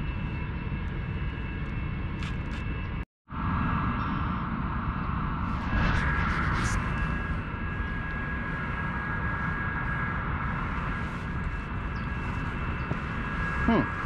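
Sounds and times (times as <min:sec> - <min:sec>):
high-pitched whine: 0:00.0 - 0:14.0
wind buffeting microphone: 0:03.4 - 0:14.0.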